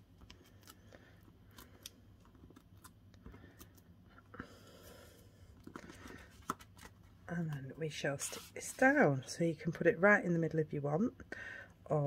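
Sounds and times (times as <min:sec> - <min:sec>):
scrape: 0:08.2 - 0:09.0.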